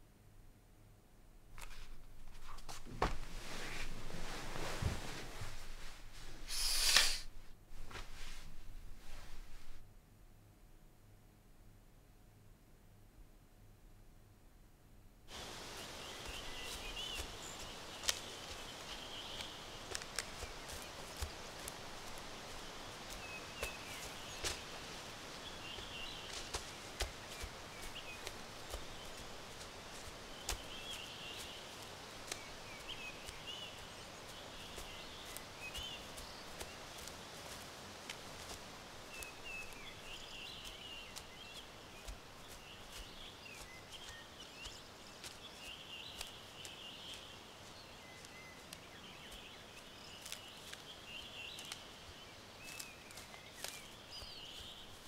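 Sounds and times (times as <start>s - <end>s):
low hiss: 0.0s - 55.0s
small birds chirping: 6.5s - 7.3s, 15.3s - 55.0s.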